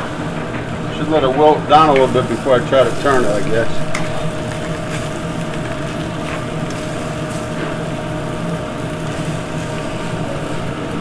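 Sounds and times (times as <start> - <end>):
gas range rumble and hum: 0.0 - 11.0.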